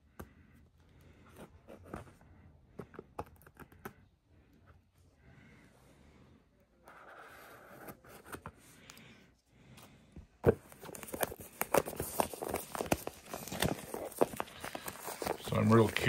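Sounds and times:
shrink wrap rustling and crinkling: 10.6s - 16.0s.

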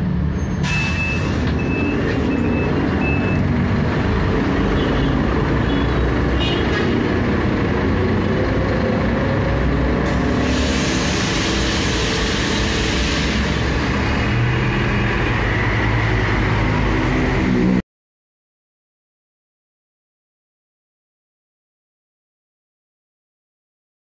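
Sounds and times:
bus engine droning: 0.0s - 17.8s
hiss: 10.1s - 13.9s.

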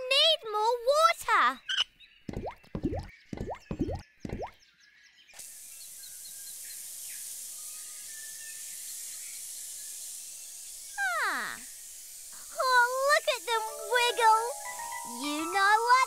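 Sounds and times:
water hose spraying hiss: 5.4s - 16.0s.

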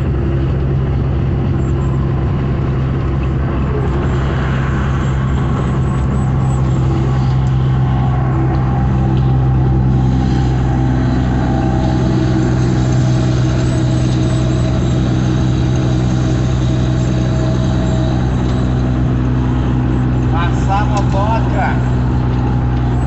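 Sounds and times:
engine droning: 0.0s - 23.0s
road and tyre noise: 0.0s - 23.0s.

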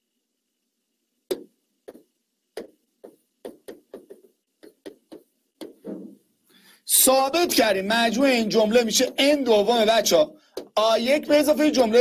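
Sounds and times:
chalk tapping on a board: 1.3s - 5.8s.

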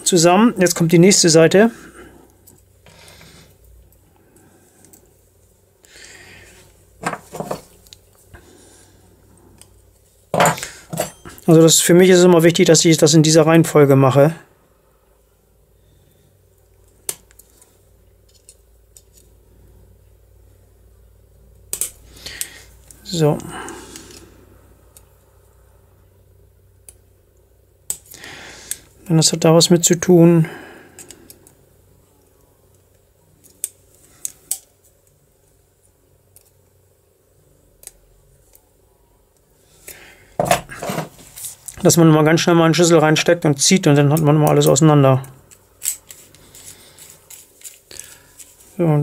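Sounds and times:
small metal parts clicking: 44.5s - 48.6s.

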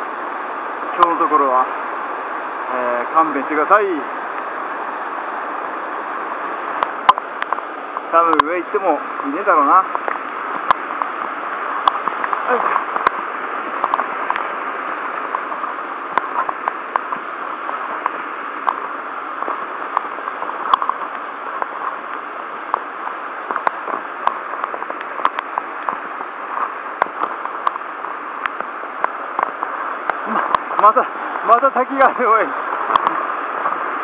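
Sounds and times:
waterfall and stream rushing: 0.0s - 34.0s
sharp clicks and knocks: 19.4s - 22.0s, 23.5s - 26.0s.

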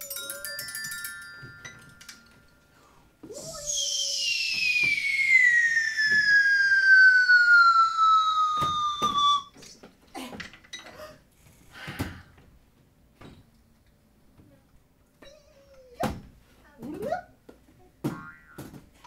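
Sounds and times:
descending whistle-like tone: 3.4s - 9.5s.

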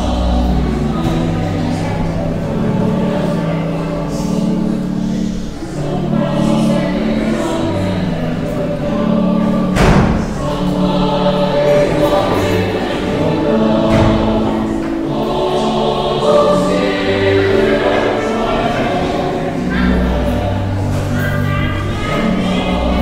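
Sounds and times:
choir singing a hymn: 0.0s - 23.0s
thump: 9.7s - 10.4s, 13.9s - 14.5s.

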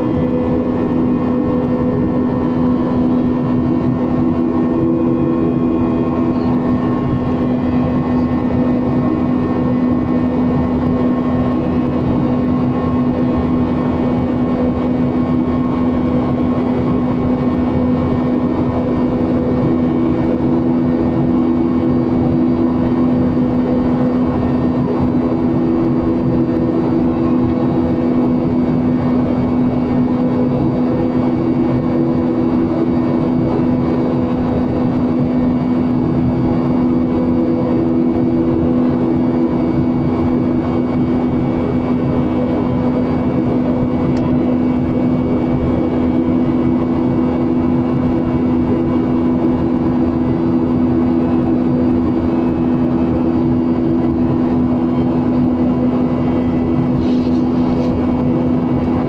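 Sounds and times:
airliner engines droning: 0.0s - 59.0s
constant low hum: 0.0s - 59.0s
rushing air: 56.8s - 58.7s.

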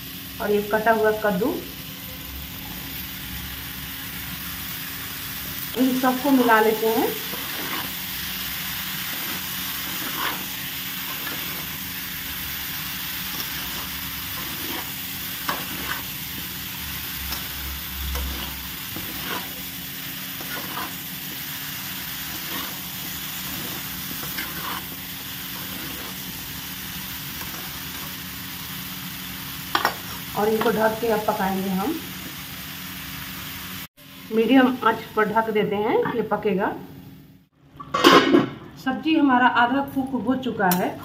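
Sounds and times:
frying sizzle: 0.0s - 38.6s
spatula scraping a pan: 7.1s - 11.9s, 13.1s - 21.4s, 22.0s - 26.4s, 27.3s - 28.2s.

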